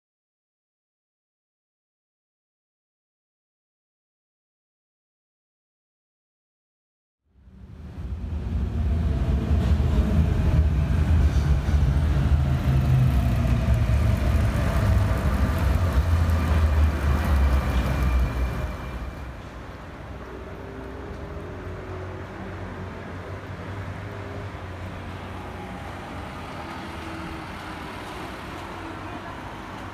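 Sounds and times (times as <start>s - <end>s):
steady traffic hum: 7.4s - 29.9s.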